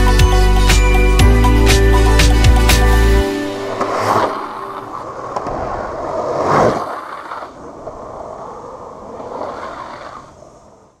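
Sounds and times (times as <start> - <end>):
longboard wheels rolling on asphalt: 3.2 - 11.0.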